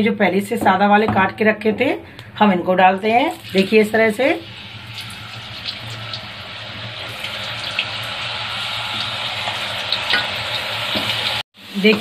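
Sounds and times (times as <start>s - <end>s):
chips deep-frying in hot oil: 3.1s - 12.0s.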